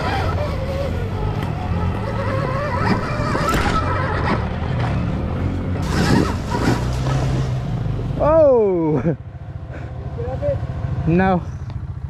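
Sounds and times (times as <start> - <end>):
electric motor whining: 0.0 - 4.8.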